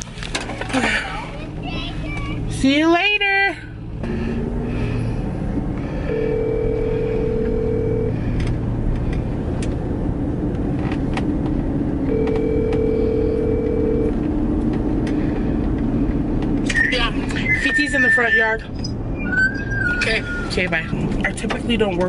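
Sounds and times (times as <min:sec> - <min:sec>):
car cabin road noise: 0:00.0 - 0:22.0
telephone ringback tone: 0:06.1 - 0:08.2, 0:12.1 - 0:14.2.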